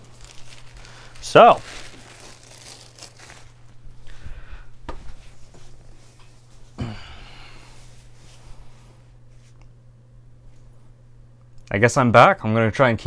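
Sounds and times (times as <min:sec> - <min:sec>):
steady low hum: 0:00.0 - 0:13.0
soft rustling: 0:07.7 - 0:09.7.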